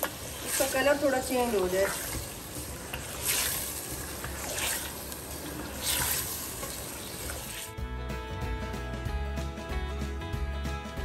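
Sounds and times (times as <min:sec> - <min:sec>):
wooden spoon stirring: 0:00.0 - 0:07.7
meat and onions sizzling in oil: 0:00.0 - 0:07.8.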